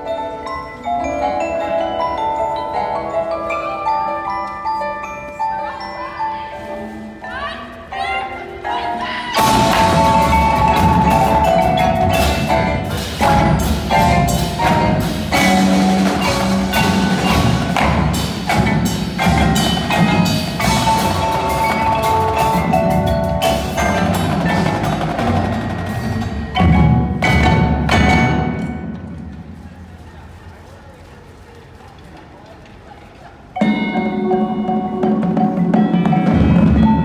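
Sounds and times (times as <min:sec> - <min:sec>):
marimbas ringing: 0:00.0 - 0:29.1, 0:33.6 - 0:37.0.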